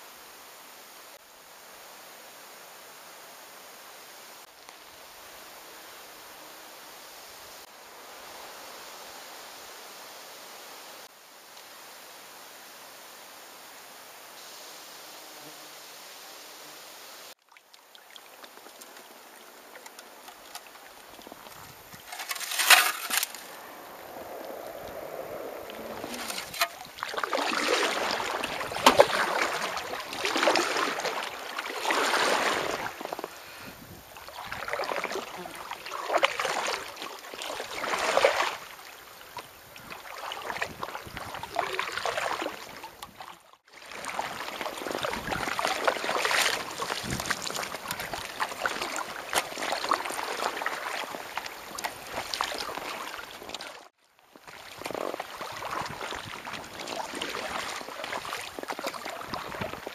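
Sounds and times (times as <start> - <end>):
paddle strokes splashing water: 17.4 - 59.9
water sloshing along hull: 17.4 - 59.9.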